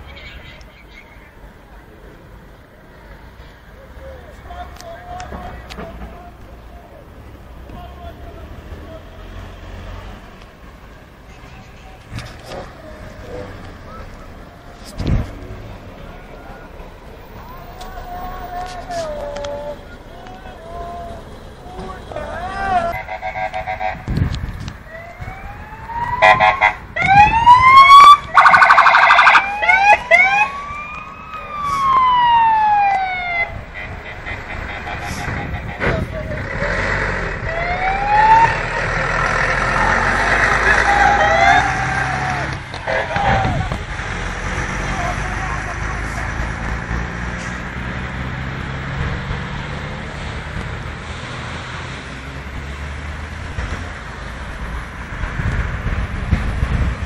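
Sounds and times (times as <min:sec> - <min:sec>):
traffic engine hum: 0:00.0 - 0:57.0
low bumps: 0:11.4 - 0:28.8
police siren wailing: 0:24.8 - 0:35.8, 0:37.4 - 0:43.8.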